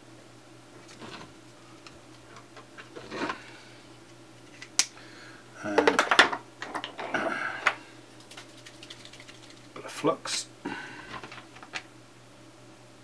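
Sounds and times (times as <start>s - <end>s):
clattering and rustling: 0.8s - 1.4s, 2.3s - 3.4s, 11.1s - 11.9s.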